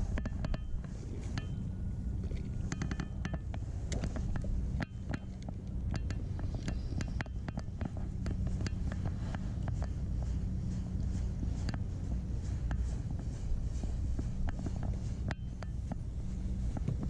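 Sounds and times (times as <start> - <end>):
wind rumbling on microphone: 0.0 - 17.0
fishing reel ticking and clicking: 2.3 - 9.9.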